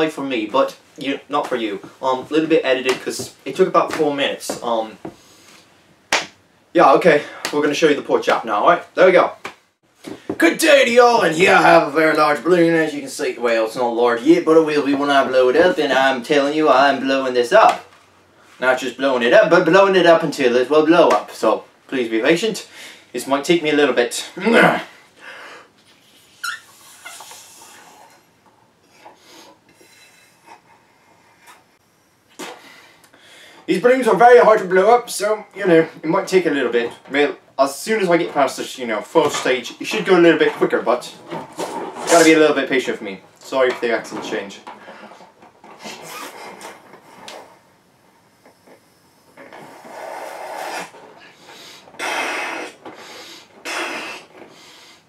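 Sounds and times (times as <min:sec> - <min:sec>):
breathy puffs into balloon: 0:49.6 - 0:55.0.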